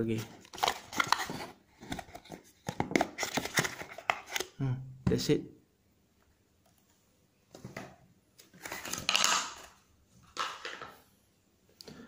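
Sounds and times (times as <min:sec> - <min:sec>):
packaging rustling and scraping: 0:00.1 - 0:04.5, 0:08.4 - 0:10.9.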